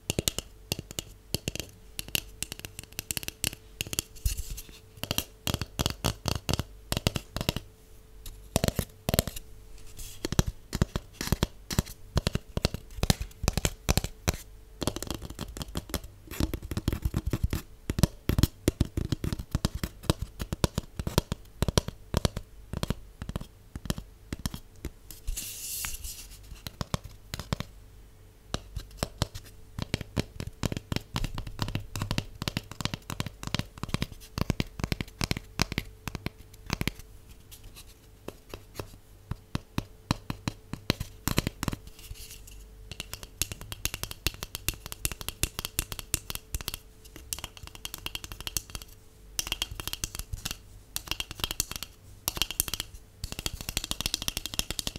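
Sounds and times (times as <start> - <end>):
fingernails tapping on cardboard tube: 0.0 - 7.7, 8.5 - 9.4, 10.2 - 25.0, 26.6 - 27.7, 28.5 - 37.0, 38.3 - 42.1, 42.9 - 54.9.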